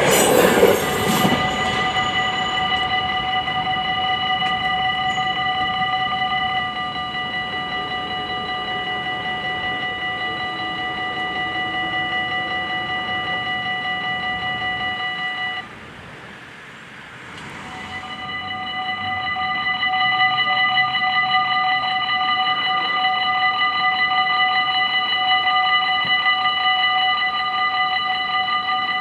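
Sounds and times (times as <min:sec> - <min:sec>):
level-crossing warning bells: 0:00.0 - 0:29.0.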